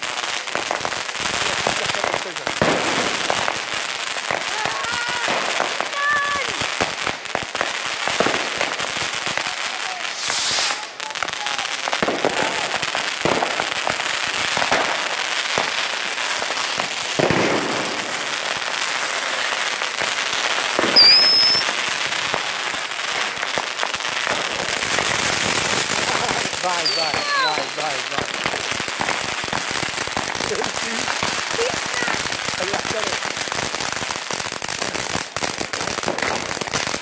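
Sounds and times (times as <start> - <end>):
firecrackers crackling and popping: 0.0 - 37.0
high wavering firework whistle: 10.1 - 10.9, 20.8 - 21.8.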